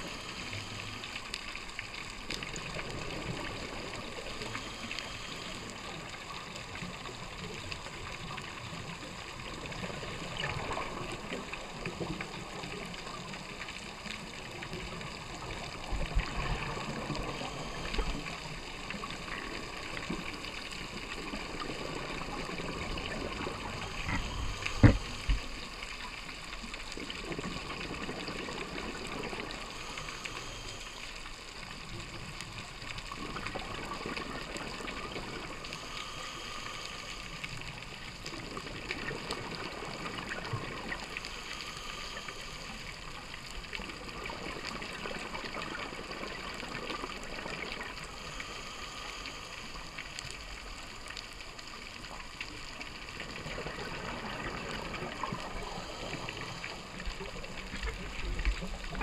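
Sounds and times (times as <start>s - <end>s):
watery hiss underwater: 0.0s - 14.0s, 14.7s - 59.0s.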